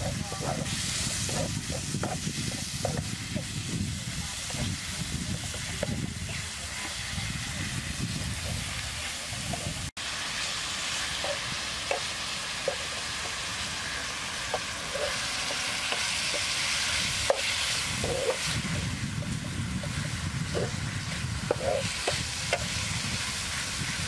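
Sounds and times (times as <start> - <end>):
spatula scraping and tapping pan: 0.0 - 3.6, 11.2 - 13.4, 14.4 - 22.9
meat sizzling in a frying pan: 0.0 - 24.0.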